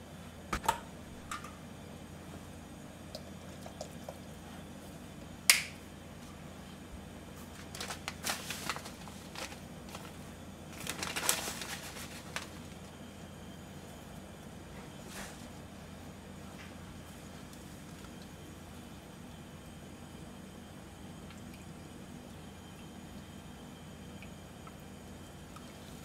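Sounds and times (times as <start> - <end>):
plastic bottle cap snapping shut: 5.5 - 5.8
plastic bag rustling: 7.4 - 13.0.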